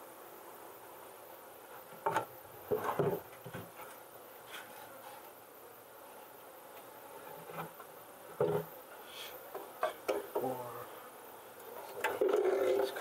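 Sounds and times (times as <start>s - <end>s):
knocks and scrapes of wood: 1.7s - 5.4s, 6.7s - 8.7s, 9.5s - 10.5s, 11.7s - 13.0s.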